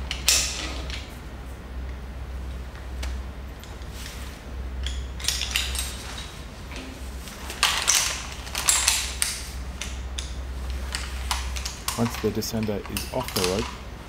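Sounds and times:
metal climbing hardware clinking: 7.6s - 13.8s.

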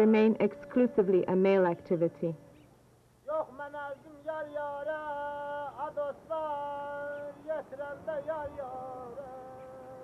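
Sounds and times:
person singing slow song: 3.3s - 10.0s.

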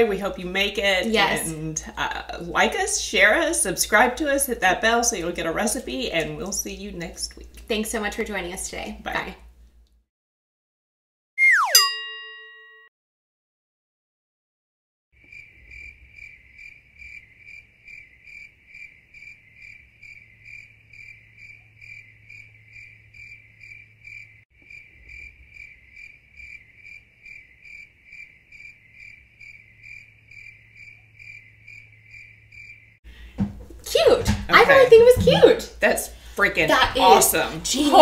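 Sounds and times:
crickets chirping: 15.2s - 33.0s.

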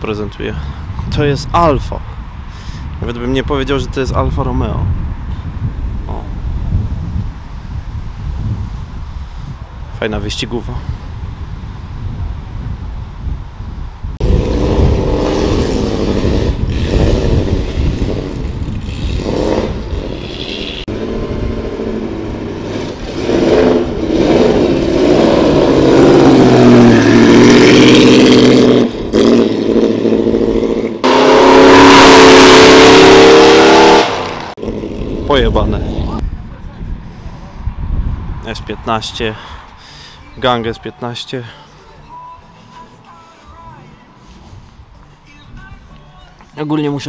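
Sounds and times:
car engine revving and accelerating: 14.2s - 35.3s.

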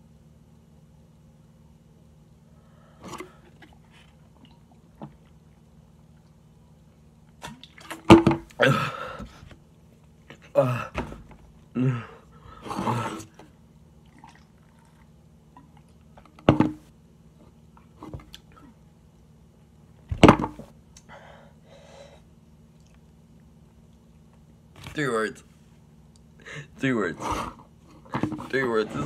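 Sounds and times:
person grunting and breathing: 8.6s - 9.4s, 10.5s - 11.1s, 11.8s - 13.3s.

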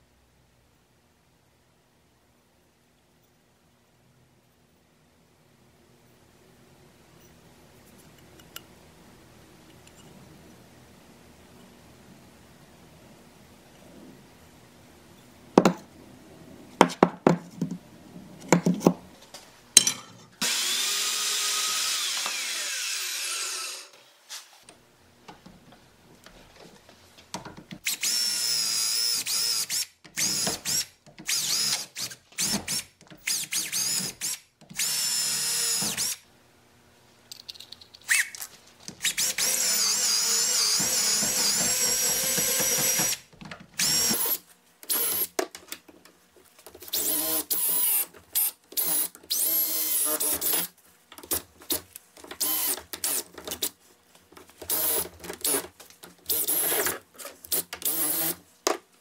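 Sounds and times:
cordless drill boring into wood: 20.4s - 24.0s, 27.8s - 36.2s, 39.0s - 45.3s, 46.9s - 50.7s, 52.4s - 53.3s, 54.7s - 55.6s, 56.3s - 56.9s, 57.5s - 58.4s.

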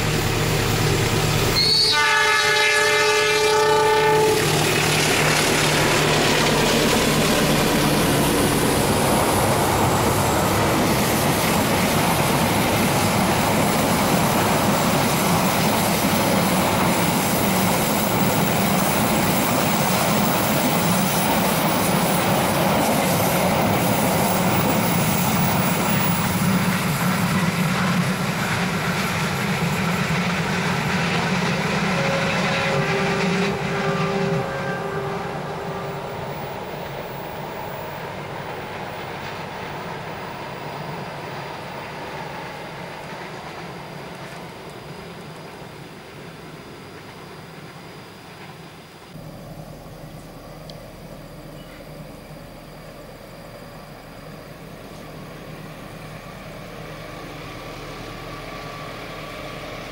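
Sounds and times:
train rumbling over tracks: 0.0s - 59.9s
train horn: 1.6s - 4.9s, 31.2s - 37.2s.

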